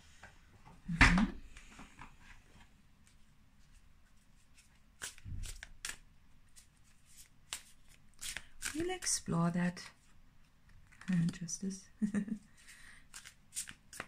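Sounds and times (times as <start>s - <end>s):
cards being shuffled: 4.4s - 9.2s, 13.1s - 14.0s.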